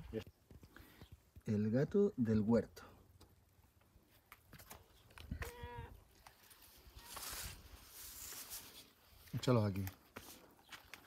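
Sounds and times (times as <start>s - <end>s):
soft rustle: 6.1s - 11.0s.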